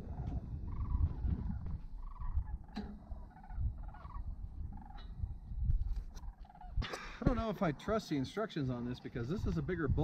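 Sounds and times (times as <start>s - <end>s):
low microphone rumble: 0.0s - 6.4s
cranes calling: 0.0s - 7.2s.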